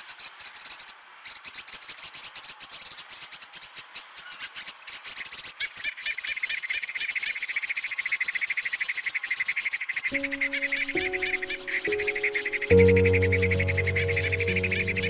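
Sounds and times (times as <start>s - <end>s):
high shrill insect chirping: 10.2s - 15.0s
lower loud insect chirping: 10.2s - 15.0s
sustained music notes: 10.2s - 15.0s.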